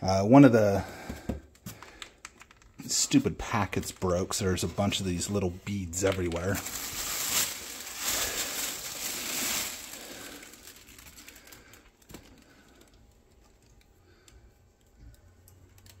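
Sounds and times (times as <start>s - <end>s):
packing material rustling: 2.3s - 13.9s.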